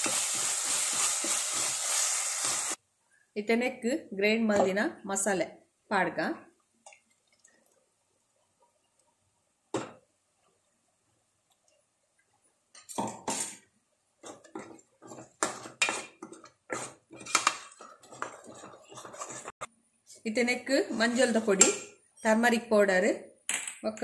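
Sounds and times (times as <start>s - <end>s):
spatula scraping pan: 0.0s - 2.8s, 14.2s - 19.7s, 20.7s - 21.9s.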